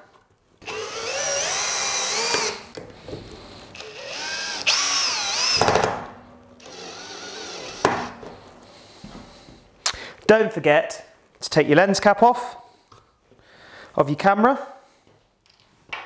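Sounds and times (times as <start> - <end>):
cordless drill motor whine: 0.6 - 2.8, 3.8 - 5.7, 6.6 - 8.1.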